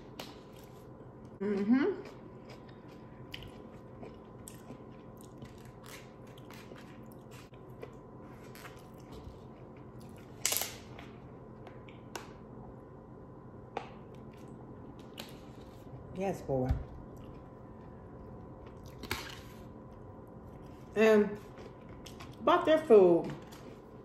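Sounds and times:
mouth chewing food: 1.5s - 10.2s.

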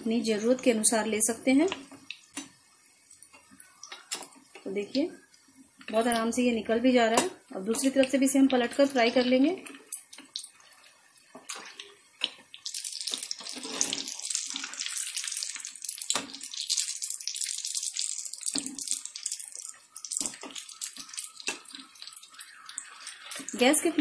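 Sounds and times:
food deep-frying in hot oil: 0.0s - 24.0s.

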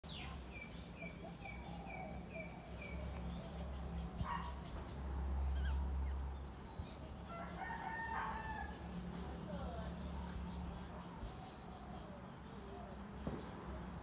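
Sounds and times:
bird chirps: 0.1s - 7.6s.

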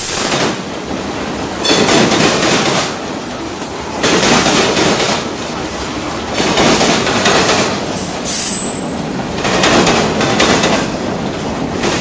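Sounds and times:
freight train rolling past: 0.0s - 12.0s
high wheel squeal: 8.2s - 9.0s.

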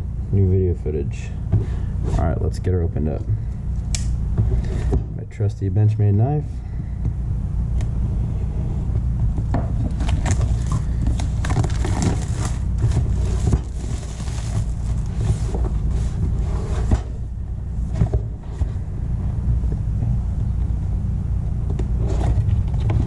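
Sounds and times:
steady low rumble: 0.0s - 23.0s
crinkling plastic wrap: 10.0s - 15.2s.

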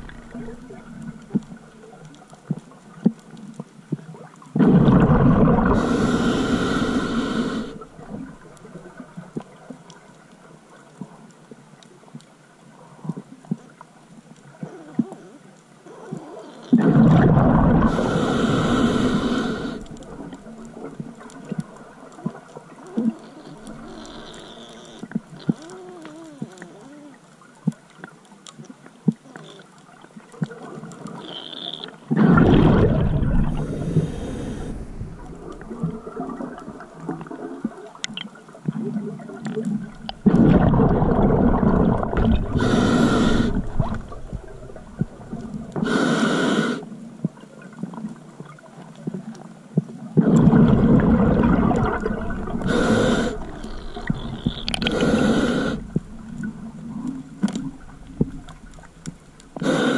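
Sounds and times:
exhaled bubbles gurgling: 0.0s - 3.1s, 4.0s - 9.8s, 15.9s - 27.8s, 30.4s - 59.9s
regulator inhale hiss: 5.7s - 8.0s, 17.8s - 20.3s, 33.5s - 35.8s, 42.5s - 44.0s, 45.8s - 47.0s, 52.4s - 56.1s, 59.6s - 59.9s
faint clicks: 19.8s - 32.2s, 33.5s - 40.8s, 51.4s - 59.8s.

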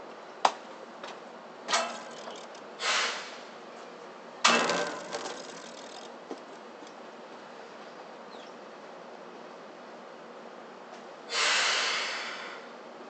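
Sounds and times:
compressed air hissing: 2.8s - 3.4s, 11.3s - 12.6s.

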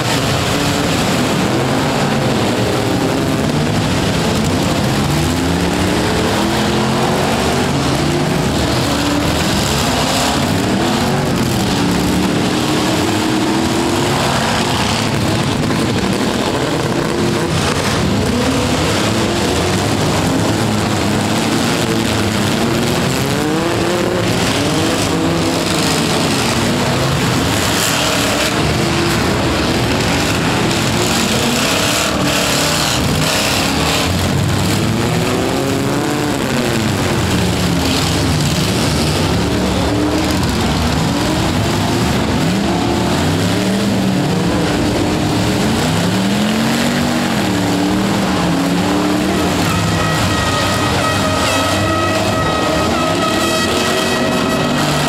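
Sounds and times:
crowd noise: 0.0s - 55.0s
truck engines revving: 0.0s - 55.0s.

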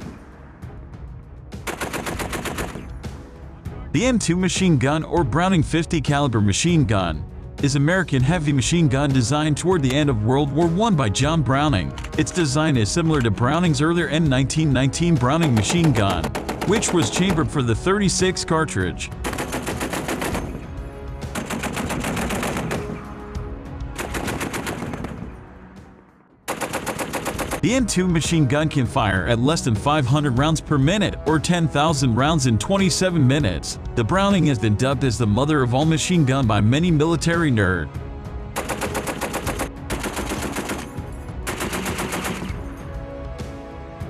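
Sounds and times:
machine gun firing bursts: 1.7s - 2.9s, 15.4s - 17.4s, 19.2s - 20.6s, 21.3s - 23.0s, 24.0s - 25.2s, 26.5s - 27.6s, 38.6s - 42.6s
heavy machine gun bursts: 26.5s - 27.6s, 38.6s - 42.6s.

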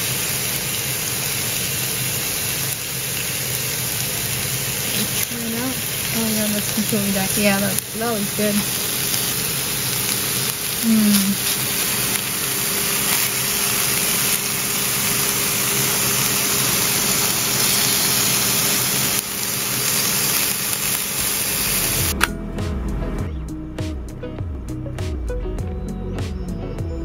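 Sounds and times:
fish sizzling on a griddle: 0.0s - 22.2s
music with a beat: 22.0s - 27.0s.

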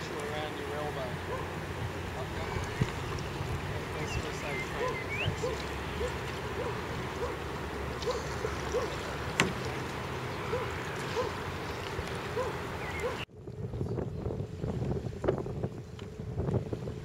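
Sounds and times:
water lapping around kayak hulls: 0.0s - 17.0s
wind rumbling on microphone: 0.0s - 17.0s.

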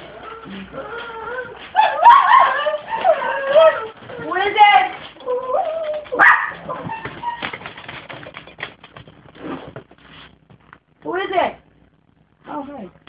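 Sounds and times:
dog whining: 0.0s - 8.0s
dog barking: 1.8s - 3.3s, 6.2s - 7.0s.

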